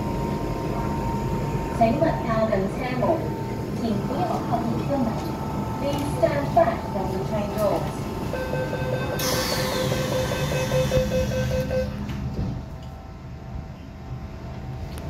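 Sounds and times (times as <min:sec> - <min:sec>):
train hum: 0:00.0 - 0:15.0
rapid door warning beeps: 0:08.3 - 0:12.1
sliding doors hissing: 0:09.1 - 0:11.3.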